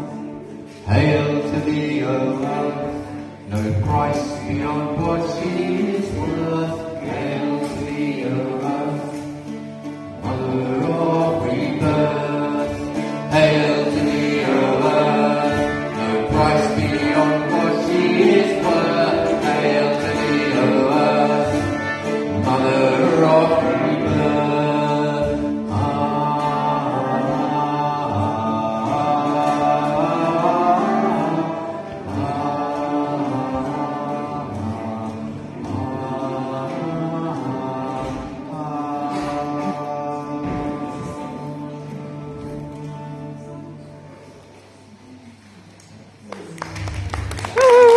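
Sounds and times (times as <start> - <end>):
violin: 0.0 - 45.2
plucked string instrument: 0.0 - 47.9
violin playing: 8.2 - 28.2
group chanting: 10.3 - 42.4.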